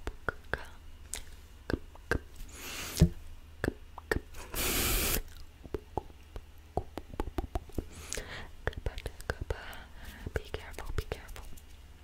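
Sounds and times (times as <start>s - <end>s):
breathy hiss: 2.4s - 3.1s, 4.4s - 5.2s
wet mouth clicks and pops: 5.2s - 9.4s.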